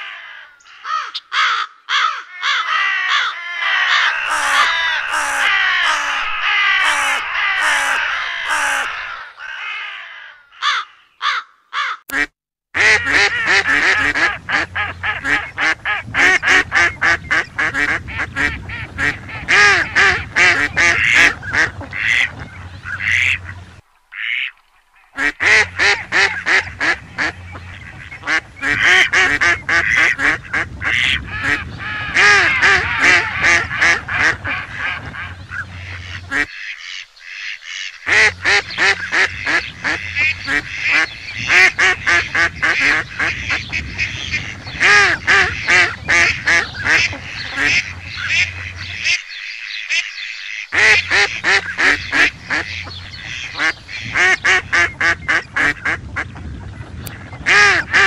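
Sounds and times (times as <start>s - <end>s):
crows cawing: 0.0s - 12.1s
ducks quacking: 0.0s - 58.0s.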